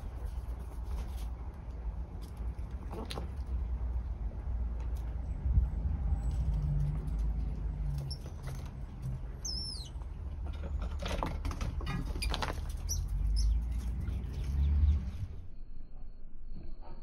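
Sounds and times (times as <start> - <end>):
squirrels scrabbling on rubber mats: 0.0 - 4.1, 4.7 - 14.6.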